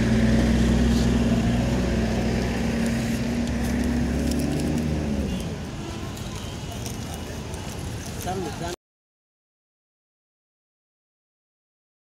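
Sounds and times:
vehicle engine running: 0:00.0 - 0:05.2.

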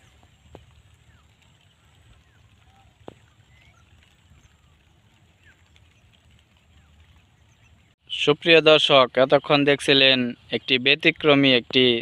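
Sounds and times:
bird chirps: 0:00.9 - 0:08.0.

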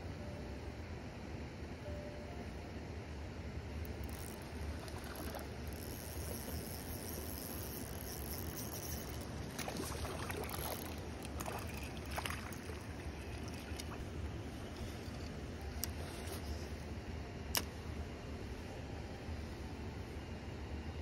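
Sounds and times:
wind: 0:00.0 - 0:21.0
water noise: 0:03.9 - 0:16.6.

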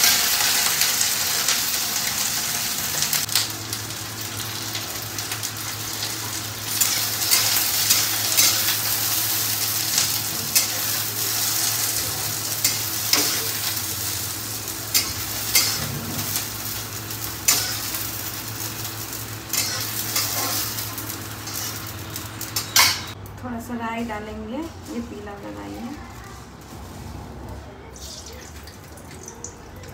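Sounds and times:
okra sizzling in hot oil: 0:00.0 - 0:23.2.

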